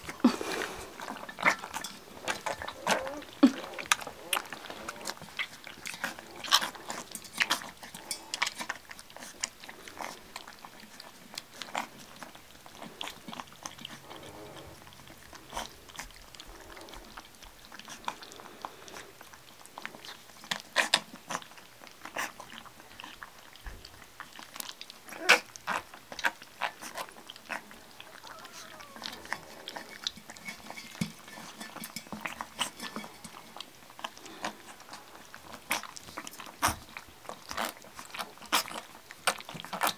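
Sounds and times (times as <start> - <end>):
puppies lapping and slurping: 0.0 - 39.9
paws clicking on metal dish: 1.0 - 14.2, 19.7 - 39.9
puppy whimpers: 2.3 - 5.2, 25.1 - 25.5, 27.5 - 29.6.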